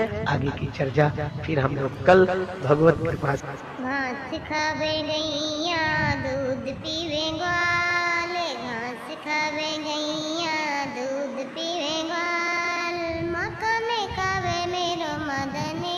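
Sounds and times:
high-pitched voice singing: 3.8 - 15.9.

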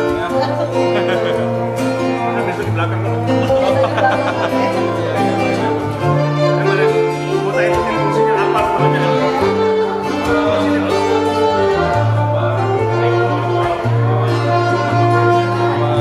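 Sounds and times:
bowed strings music: 0.0 - 16.0
sustained bass notes: 0.0 - 16.0.

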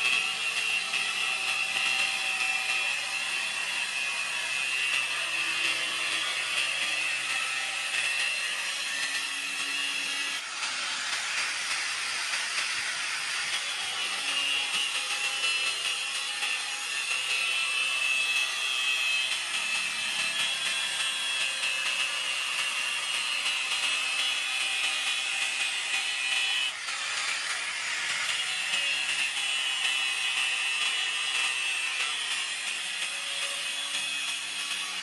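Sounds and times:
angle grinder cutting steel: 0.0 - 35.0.

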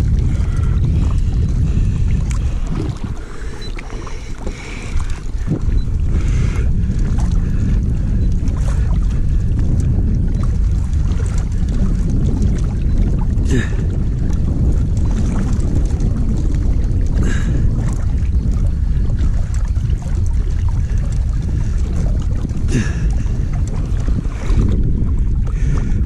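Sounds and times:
water moving rumble: 0.0 - 26.0
wind buffeting microphone: 0.0 - 26.0.

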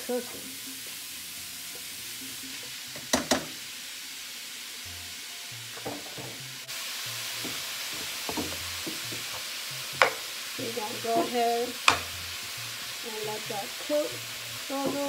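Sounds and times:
ground beef sizzling: 0.0 - 15.0
spatula knocking against pan: 3.0 - 3.5, 7.4 - 9.3, 11.2 - 12.1.

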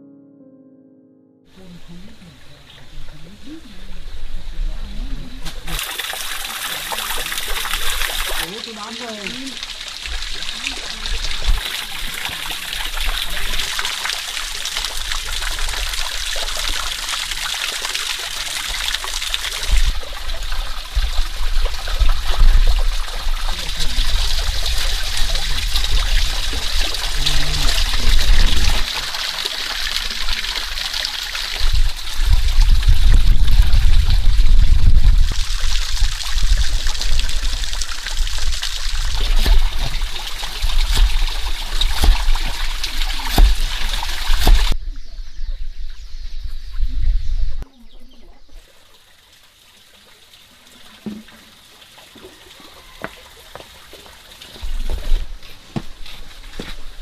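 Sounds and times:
water running and trickling: 4.8 - 44.8, 48.0 - 57.0
low rumbling: 19.8 - 28.9, 31.7 - 47.6.

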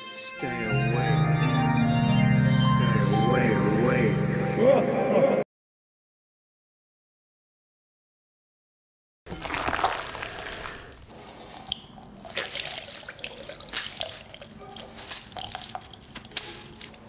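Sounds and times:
wet hit: 9.3 - 11.0
wet dripping splatters: 9.3 - 17.0.

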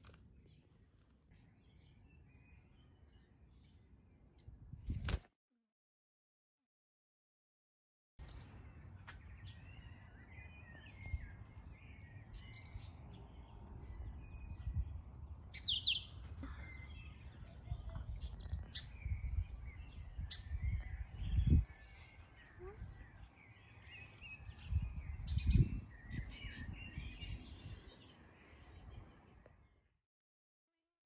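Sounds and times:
birds chirping: 8.2 - 29.7.

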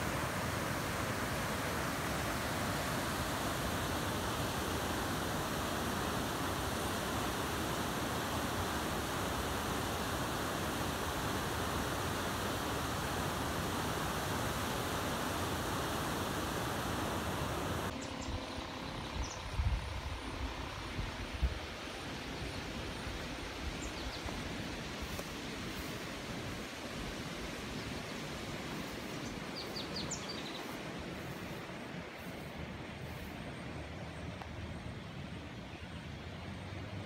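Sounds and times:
river rushing over rapids: 0.0 - 17.9.

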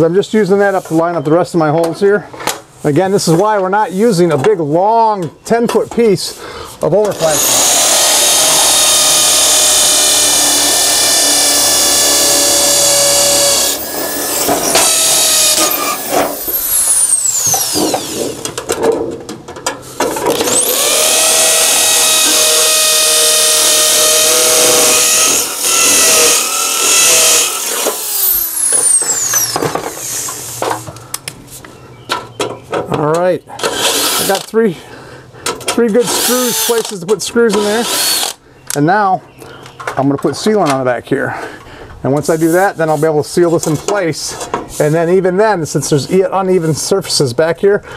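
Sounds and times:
hammer drill drilling into brick: 7.1 - 18.4, 20.3 - 30.3, 33.6 - 34.5, 36.0 - 37.0, 37.6 - 38.4.

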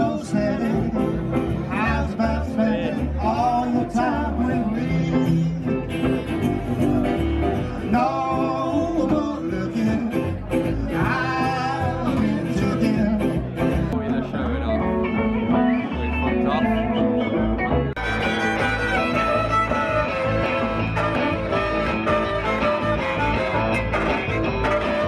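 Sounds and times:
guitar: 0.0 - 25.0
plucked double bass: 0.0 - 25.0
person singing: 7.5 - 13.5.

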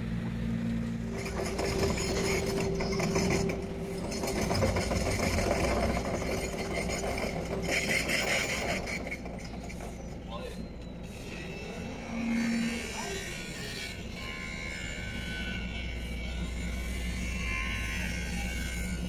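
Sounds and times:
machinery humming: 0.0 - 19.0
machinery rattling and clattering: 1.0 - 11.2.

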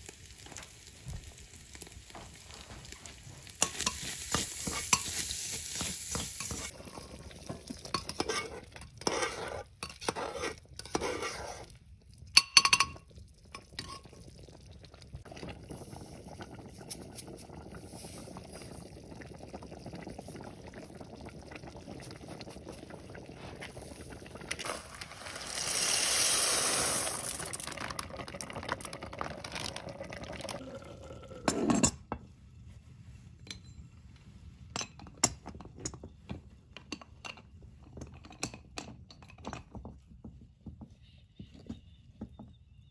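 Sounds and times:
food simmering: 0.0 - 31.6
metal spoon scraping pot: 7.8 - 11.8.

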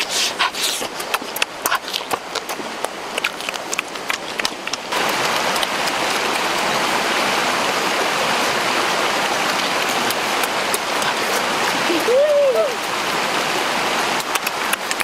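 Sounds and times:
stream rushing over rocks: 0.0 - 15.0
wet mouth clicks and smacks: 0.4 - 6.4, 14.2 - 15.0.

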